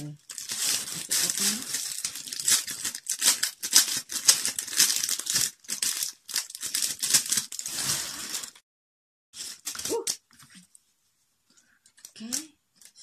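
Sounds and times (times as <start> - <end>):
plastic bag crinkling: 0.1 - 8.6, 9.4 - 10.5.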